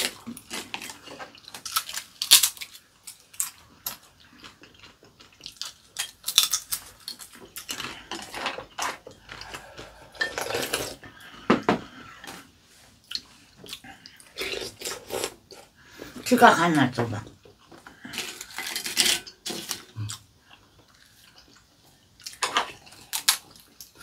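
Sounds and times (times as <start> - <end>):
chip crunching: 0.0 - 11.0, 18.0 - 20.2, 22.2 - 24.0.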